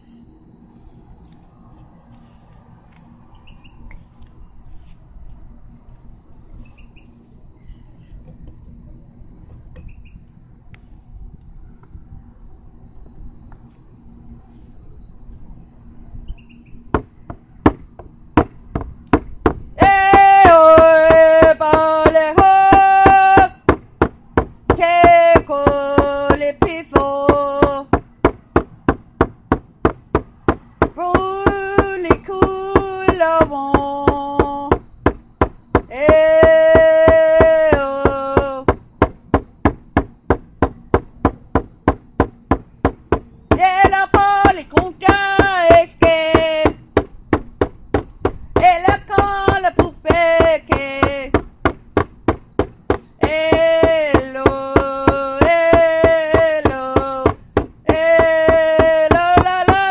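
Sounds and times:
steady knocking beat: 16.9s - 59.9s
person singing long notes: 19.8s - 23.8s, 24.7s - 28.0s, 30.8s - 34.8s, 35.8s - 38.8s, 43.5s - 46.8s, 48.6s - 51.5s, 53.2s - 59.9s.

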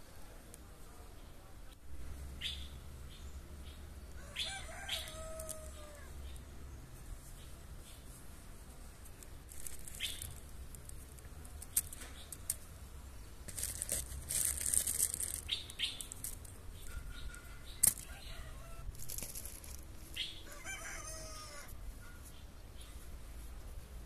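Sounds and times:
rooster crowing: 4.1s - 6.2s, 17.5s - 18.9s, 20.4s - 21.8s
potatoes rustling: 9.1s - 12.7s, 13.4s - 18.2s, 18.8s - 20.2s.

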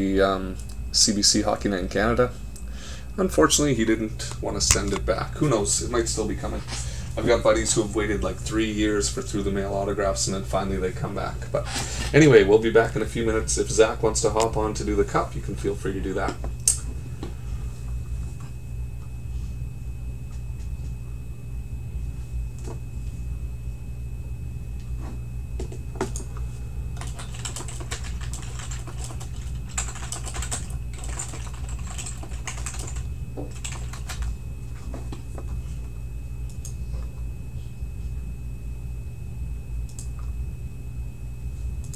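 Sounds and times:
faint high whine: 0.0s - 41.9s
low hum: 0.0s - 41.9s
keyboard typing clicks: 27.0s - 34.3s.

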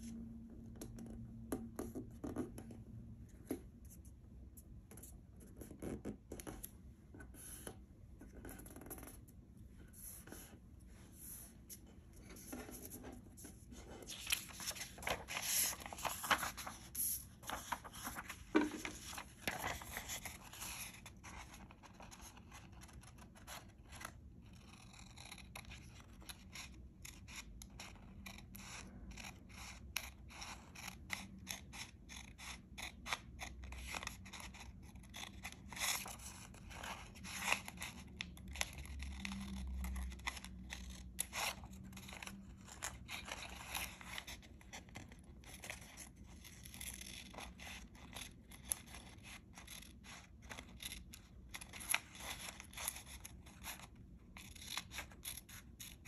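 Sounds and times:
paper rustling: 11.3s - 20.8s.

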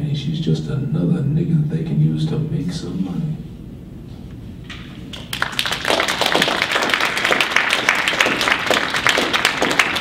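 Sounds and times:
audience applause: 5.1s - 10.0s.

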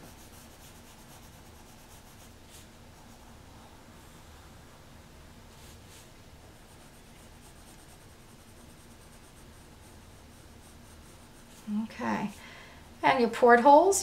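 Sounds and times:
pencil scratching on paper: 0.0s - 3.2s, 5.6s - 12.4s.

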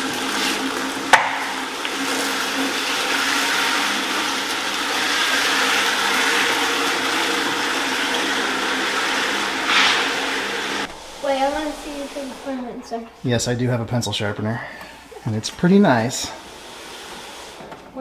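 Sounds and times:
workbench scraping on concrete: 8.0s - 13.0s, 15.5s - 18.0s.

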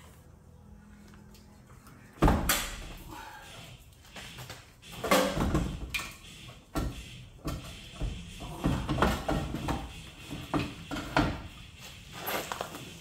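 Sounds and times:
metal clunks and scraping: 4.2s - 11.6s.

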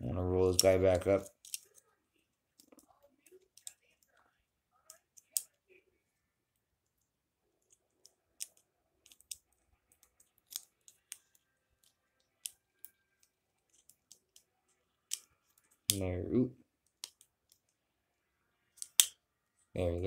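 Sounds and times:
plastic toy parts clicking and snapping: 0.4s - 1.9s, 2.6s - 4.2s, 4.8s - 5.6s, 7.6s - 16.0s, 16.8s - 17.8s, 18.7s - 19.2s.

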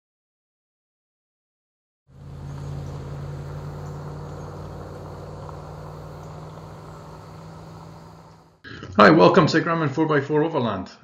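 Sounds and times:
engine idling: 2.1s - 8.6s
insects chirping: 2.1s - 8.6s.

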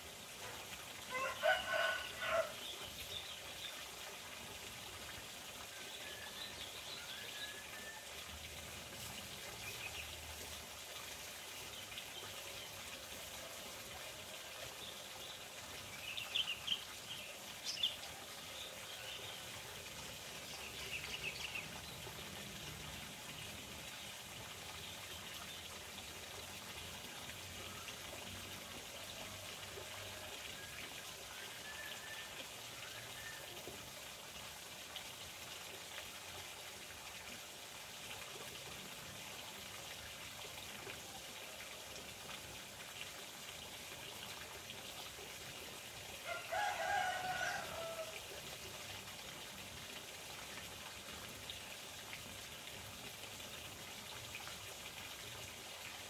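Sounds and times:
running water rushing: 0.0s - 56.0s
rooster crowing: 1.1s - 2.6s, 46.2s - 48.2s.

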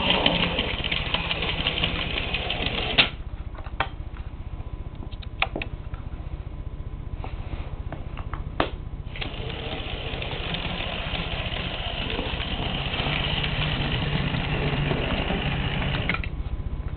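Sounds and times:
model train motor whirring: 9.2s - 16.2s.

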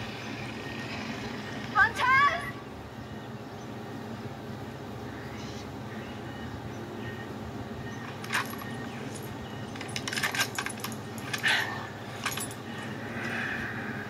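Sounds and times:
steady low hum: 0.0s - 14.0s
metallic rifle clicks and clacks: 8.0s - 12.6s.

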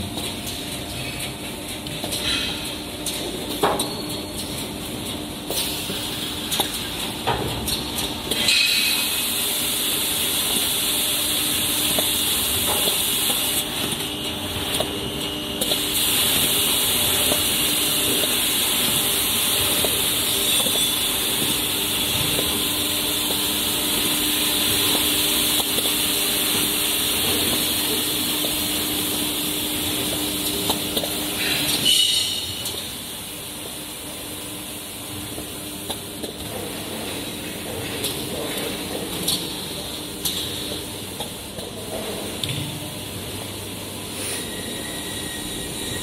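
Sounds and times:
steady machine hiss: 8.4s - 13.7s, 15.6s - 35.8s.

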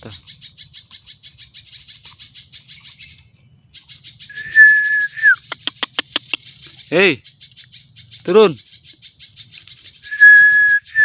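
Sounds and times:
insects chirping: 0.0s - 11.0s
held whistle dropping in pitch: 4.3s - 5.4s, 10.1s - 11.0s.

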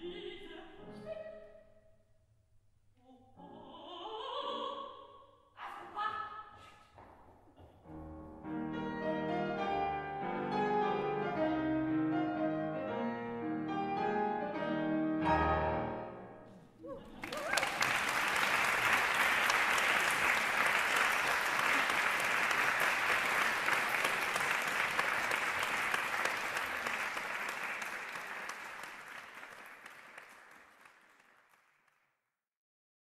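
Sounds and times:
audience applause: 17.0s - 32.0s.

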